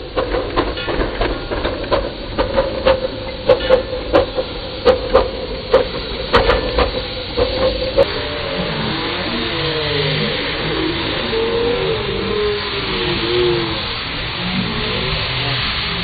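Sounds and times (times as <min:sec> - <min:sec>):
locomotive wheels clicking and knocking: 0:00.0 - 0:08.1
steady hum: 0:00.0 - 0:16.0
steam hissing: 0:00.0 - 0:16.0.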